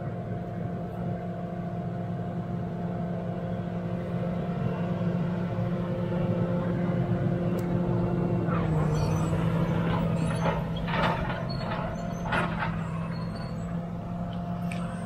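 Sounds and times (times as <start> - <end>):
bulldozer diesel engine running: 0.0 - 15.0
steel tracks clanking and squealing: 8.2 - 15.0.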